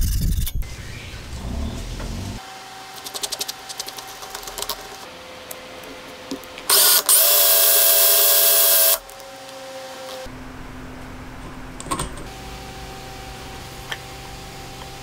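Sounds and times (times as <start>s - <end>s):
cordless drill motor running: 6.7s - 9.0s.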